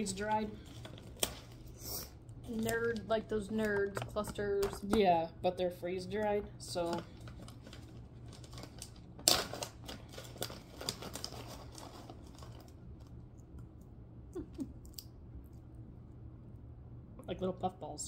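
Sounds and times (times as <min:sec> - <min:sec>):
plastic pouch crinkling: 0:00.0 - 0:01.8, 0:02.4 - 0:05.0, 0:06.8 - 0:13.2.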